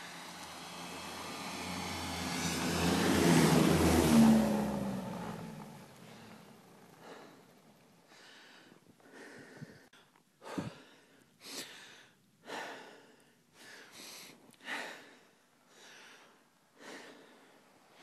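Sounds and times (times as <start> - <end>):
person breathing: 6.0 - 18.0.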